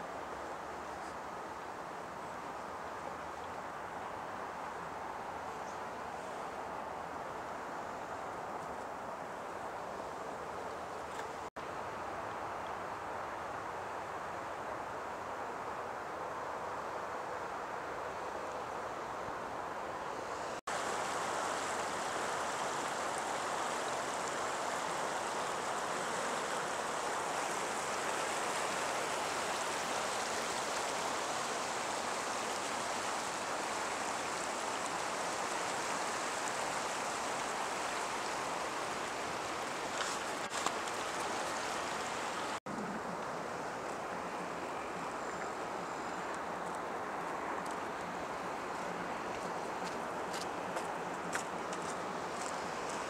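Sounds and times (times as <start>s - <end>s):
wind: 0.0s - 53.0s
water rushing over weir: 20.6s - 53.0s.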